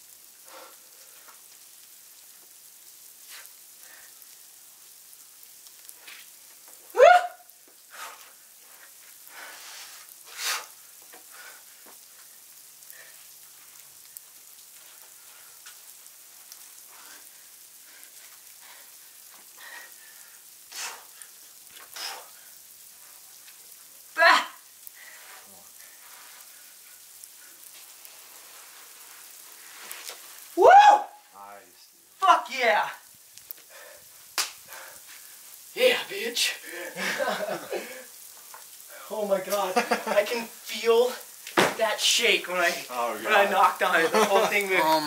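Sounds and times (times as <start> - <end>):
faint hiss: 0.0 - 45.0
sharp breaths: 7.9 - 11.8, 33.6 - 35.5
man grunting: 44.3 - 45.0.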